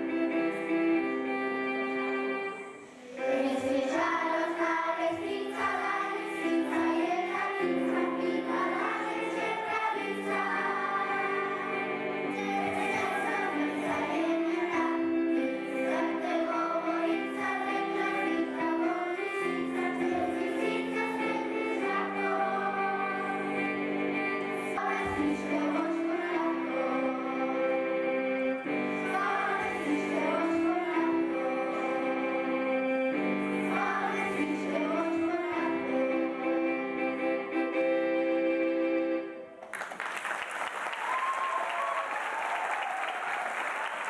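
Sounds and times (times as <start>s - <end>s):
held instrumental accompaniment: 0.0s - 39.8s
group of voices singing: 2.6s - 36.7s.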